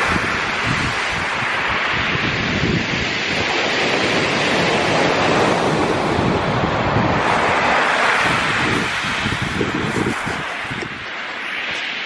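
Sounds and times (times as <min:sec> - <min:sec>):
waves breaking on shingle: 0:00.0 - 0:12.0.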